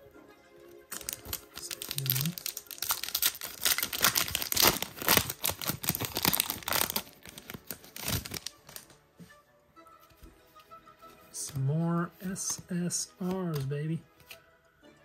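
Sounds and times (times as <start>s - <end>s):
foil wrapper tearing and crinkling: 0.9s - 8.9s.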